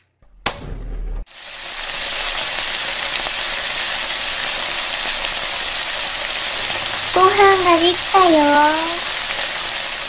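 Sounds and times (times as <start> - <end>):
food sizzling on hot plate: 1.3 - 10.0
low hum: 5.6 - 9.2.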